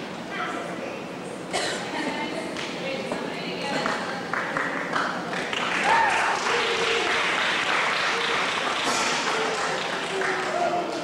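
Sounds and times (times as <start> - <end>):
murmur of voices: 0.0 - 11.0
audience applauding: 4.3 - 11.0.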